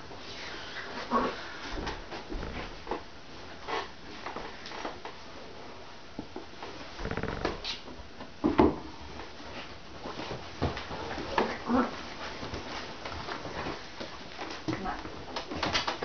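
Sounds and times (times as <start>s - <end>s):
bed making handling noises: 6.7s - 7.9s.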